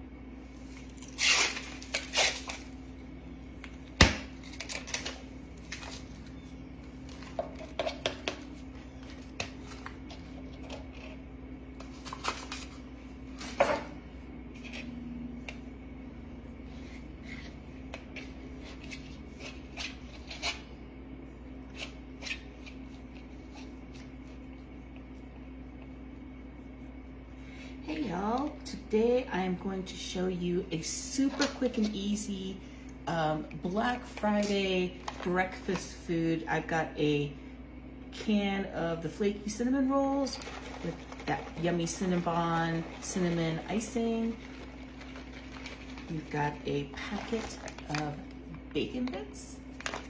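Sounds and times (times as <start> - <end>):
steady low hum: 0.0 - 50.0
dough handling taps and rustles: 7.0 - 12.7.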